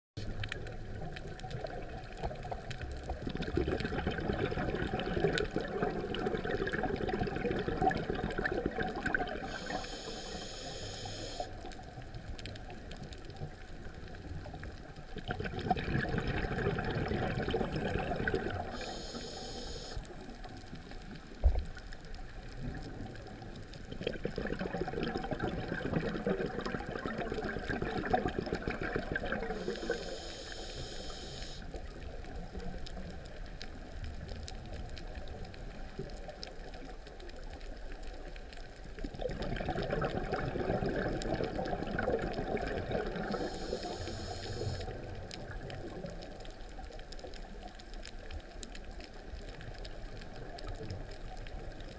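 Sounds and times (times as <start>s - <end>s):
exhaled air bubbling underwater: 0.2s - 51.9s
regulator hiss: 9.5s - 11.5s, 18.7s - 20.2s, 29.6s - 31.6s, 43.3s - 44.9s.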